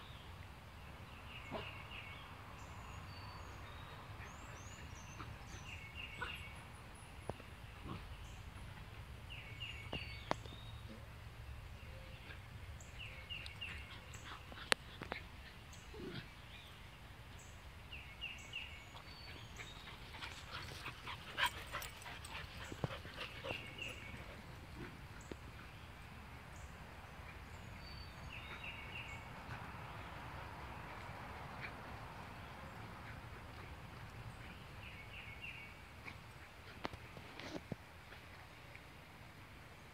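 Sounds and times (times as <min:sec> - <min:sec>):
puppies playing: 0:13.2 - 0:16.4, 0:18.9 - 0:26.2.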